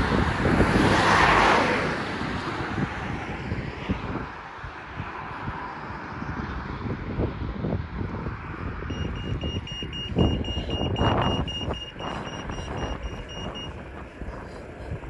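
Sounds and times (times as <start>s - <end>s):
wind rumble on microphone: 0.0s - 15.0s
crossing signal rapid beeps: 8.9s - 15.0s.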